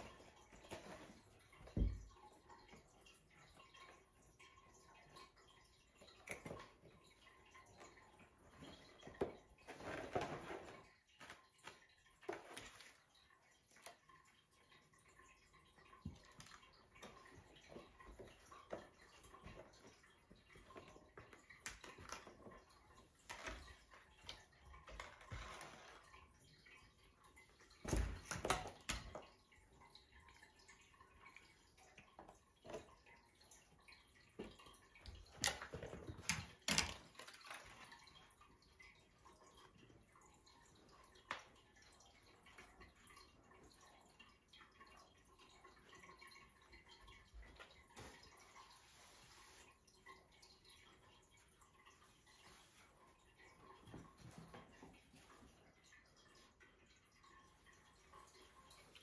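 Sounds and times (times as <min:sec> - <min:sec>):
kitten playing with taps and rustles: 0:34.4 - 0:38.1.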